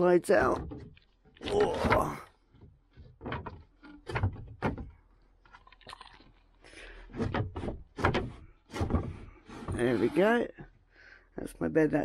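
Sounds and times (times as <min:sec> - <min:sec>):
wooden knocks: 0:00.3 - 0:05.6, 0:07.0 - 0:10.7
wooden bed frame sliding scrape: 0:07.0 - 0:10.4.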